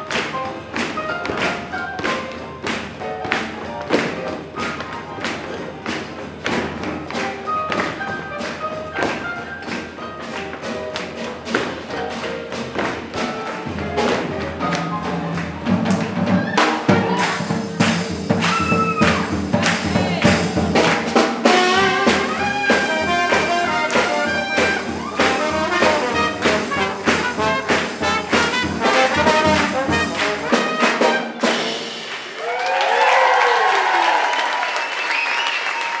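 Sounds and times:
swing band playing: 0.0 - 32.8
crowd applauding and whooping: 14.8 - 21.1, 23.8 - 25.8, 32.0 - 36.0.

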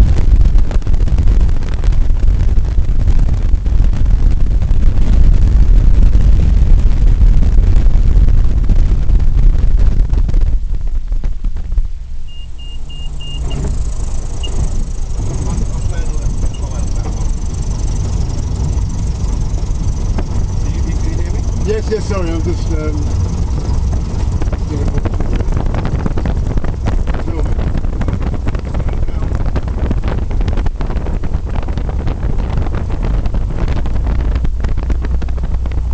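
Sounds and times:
aircraft engine and wheels rumbling: 0.0 - 35.9
wind buffeting microphone: 0.0 - 35.9
short high beeps: 12.3 - 14.8.

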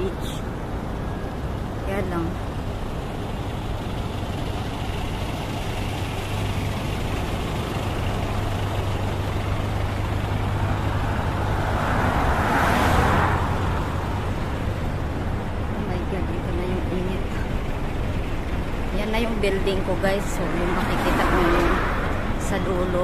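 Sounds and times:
road traffic hum and tyre noise: 0.0 - 23.0
vehicle passing loudly: 5.1 - 16.0.

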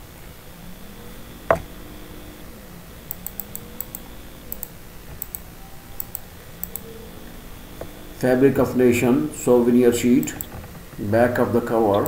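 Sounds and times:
faint room hum: 0.0 - 12.0
keyboard clicks: 3.0 - 7.0, 10.1 - 10.6.

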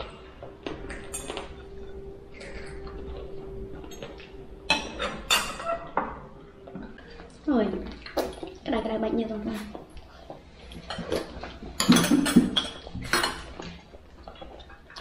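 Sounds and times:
spoons and dishes clinking: 0.0 - 3.2, 3.8 - 7.2, 10.6 - 15.0
faint steady hum: 0.0 - 15.0.

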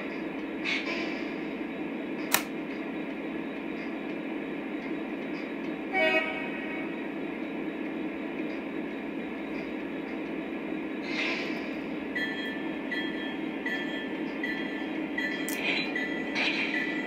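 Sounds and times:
sharp click: 2.3 - 2.5.

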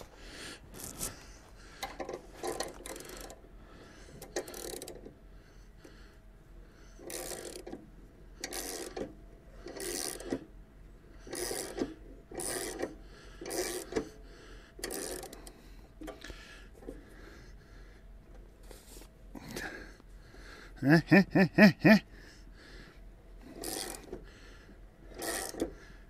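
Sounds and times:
socket ratchet clicking: 4.2 - 5.1, 7.0 - 7.8, 8.4 - 10.5, 14.8 - 16.3, 25.2 - 25.8.

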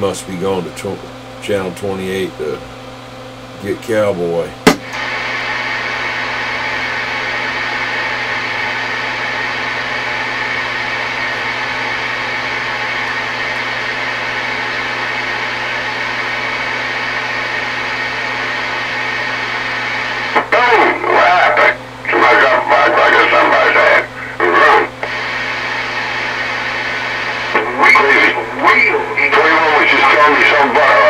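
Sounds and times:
radio static hiss: 3.5 - 31.0
voice over radio: 20.4 - 25.4, 27.3 - 31.0.

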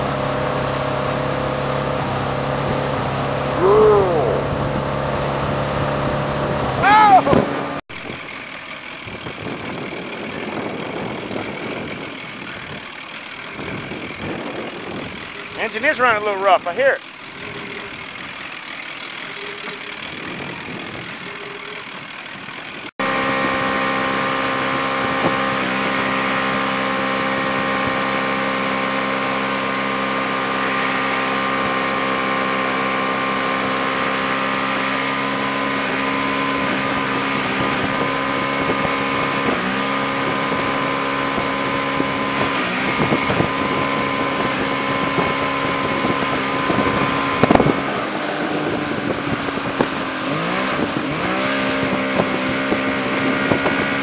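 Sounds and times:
motorboat engine: 0.0 - 54.0
wind: 0.0 - 54.0.

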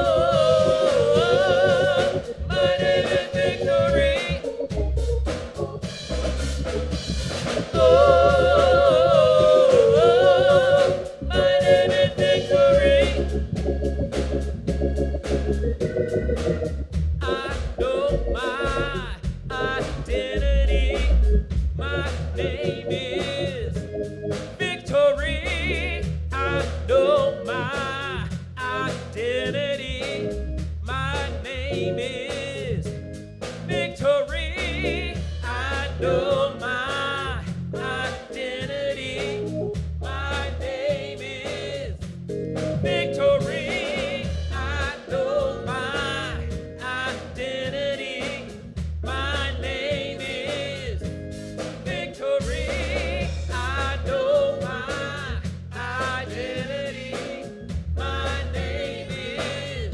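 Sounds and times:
bass line and steady beat: 0.0 - 59.9
voices singing gospel song: 0.0 - 59.9.

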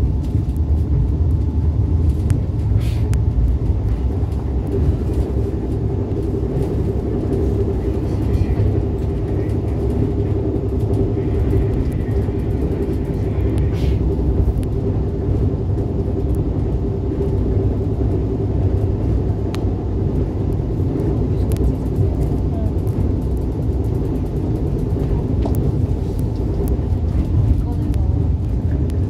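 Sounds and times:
constant droning hum: 0.0 - 29.0
train rumbling at speed: 0.0 - 29.0.

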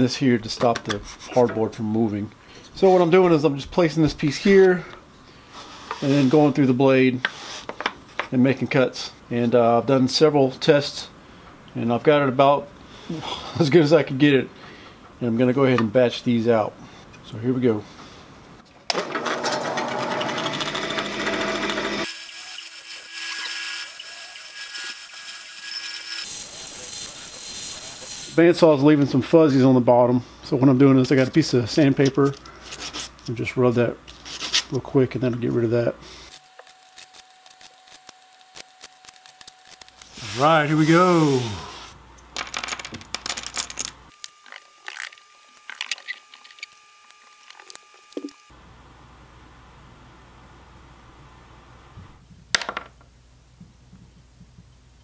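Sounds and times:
bandsaw cutting wood: 19.1 - 28.4
wooden pieces clattering: 42.4 - 45.1.

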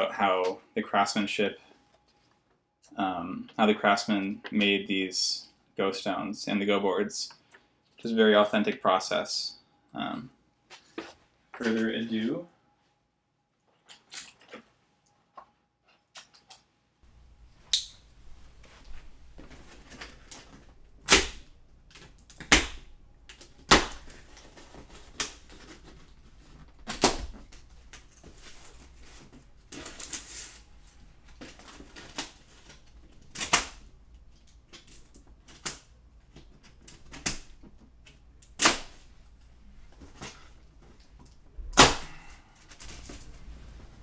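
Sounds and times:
plastic straps snapping: 31.4 - 33.8.

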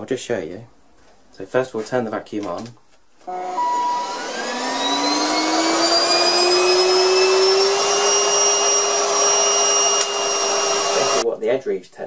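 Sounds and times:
stick vacuum motor whining: 3.3 - 11.2.

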